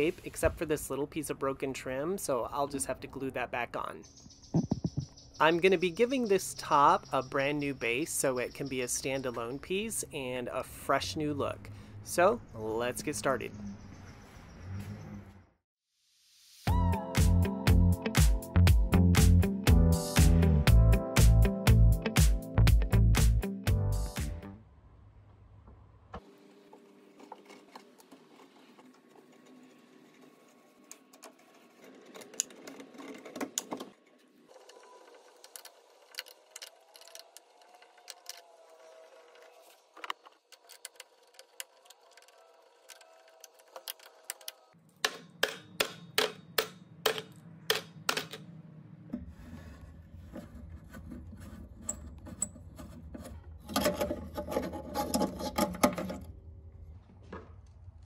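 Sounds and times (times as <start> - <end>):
screwdriver clicking and scraping: 40.0 - 44.7, 50.3 - 56.3.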